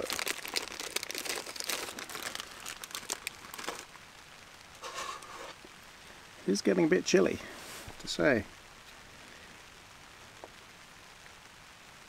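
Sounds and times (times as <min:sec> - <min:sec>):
paper packet crinkling: 0:00.0 - 0:04.0, 0:04.7 - 0:05.6.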